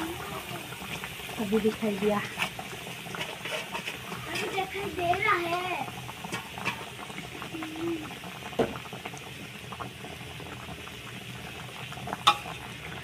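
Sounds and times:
rice sizzling in a pot: 0:00.0 - 0:13.0
metal spatula scraping a pot: 0:02.2 - 0:04.8, 0:06.3 - 0:06.9.

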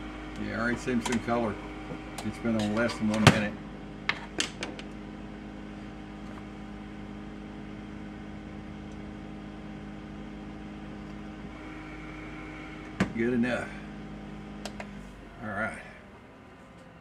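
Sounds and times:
air fryer humming: 0:00.0 - 0:17.0.

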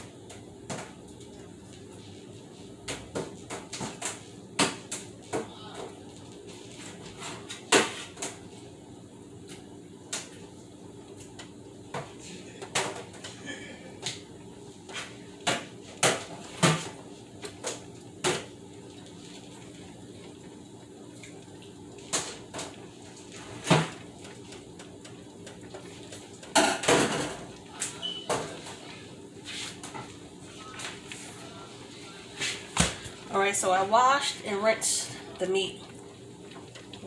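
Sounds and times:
dishes knocking and clattering: 0:23.6 - 0:28.8.

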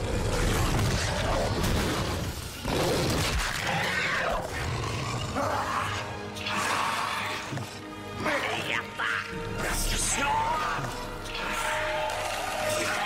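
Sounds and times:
monster roaring and snarling: 0:00.0 - 0:07.8.

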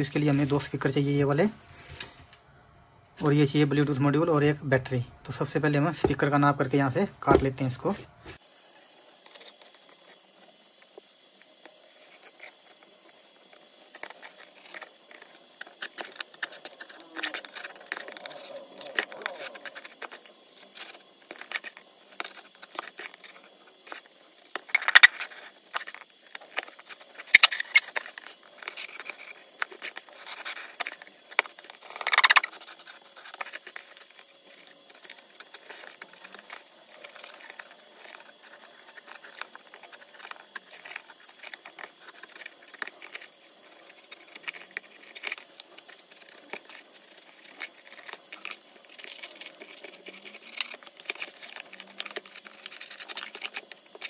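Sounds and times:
blade scraping cardboard: 0:11.6 - 0:54.0.

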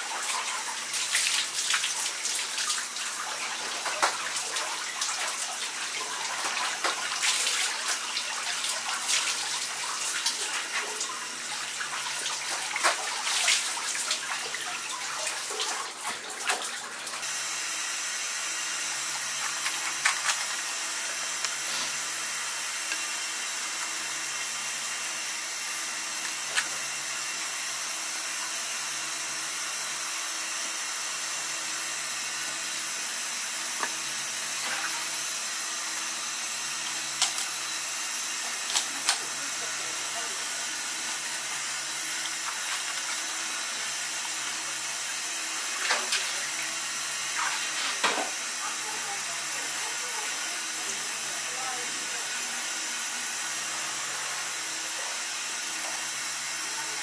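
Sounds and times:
tap water running into sink: 0:00.1 - 0:17.3, 0:33.7 - 0:35.4, 0:36.0 - 0:51.2.

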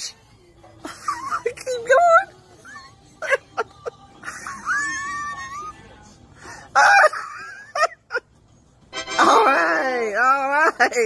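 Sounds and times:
woman giggling and squealing: 0:00.8 - 0:01.6, 0:02.6 - 0:05.9, 0:06.7 - 0:08.3.

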